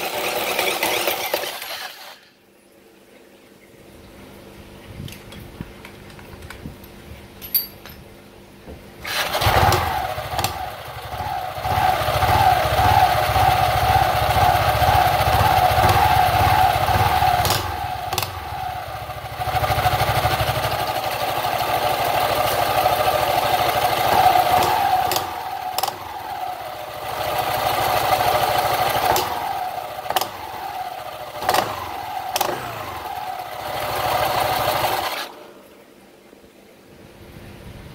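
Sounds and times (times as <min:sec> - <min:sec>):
scooter engine revving: 0:00.0 - 0:02.2, 0:09.0 - 0:35.5.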